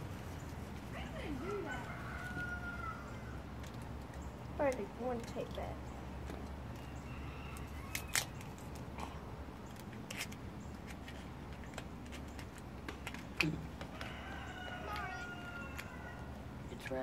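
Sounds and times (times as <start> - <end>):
fingers crinkling gift wrapping: 7.6 - 9.0.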